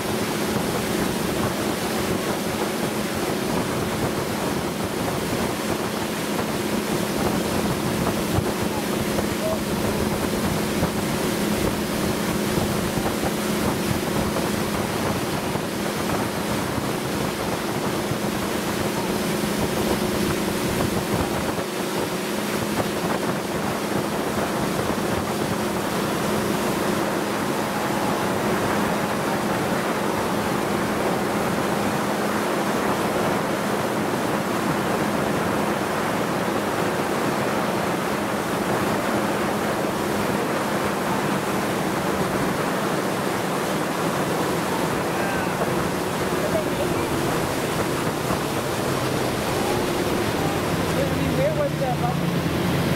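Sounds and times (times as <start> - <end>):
boat engine humming: 0.0 - 52.9
wind buffeting microphone: 0.0 - 52.9.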